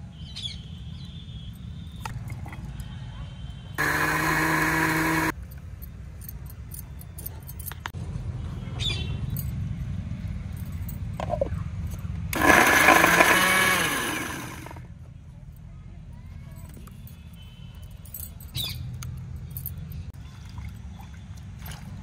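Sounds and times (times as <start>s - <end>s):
mixer grinder motor whine: 3.8s - 5.3s, 12.3s - 14.9s.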